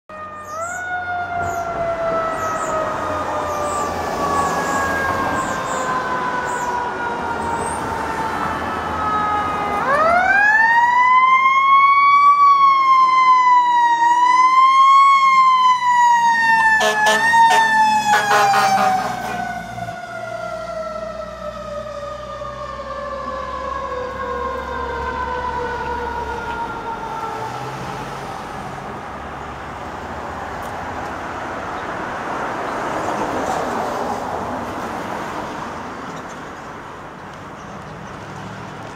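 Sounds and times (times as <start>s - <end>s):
mechanical siren wailing: 0.1s - 27.7s
truck engine rumble: 15.9s - 32.0s.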